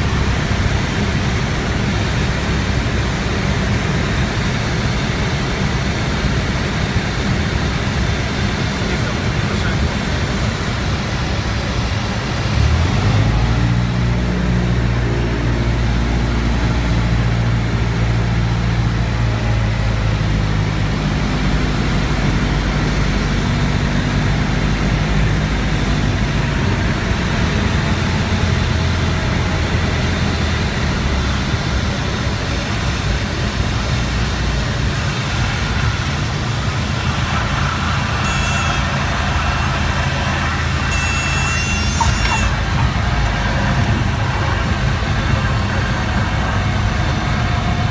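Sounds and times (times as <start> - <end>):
airplane engine and propeller droning: 0.0 - 47.9
thin high whistle: 38.2 - 39.8, 40.8 - 42.7.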